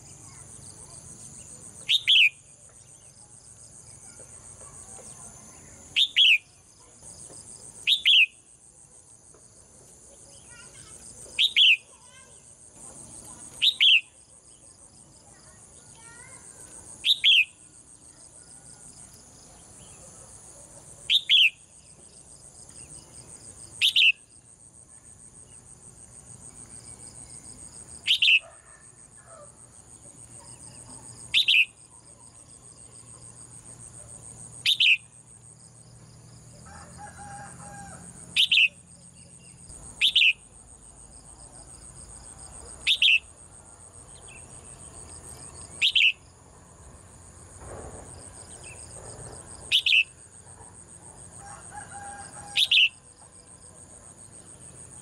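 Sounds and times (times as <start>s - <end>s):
high buzz of insects: 0.0s - 55.0s
bird giving sharp calls: 45.8s - 46.2s.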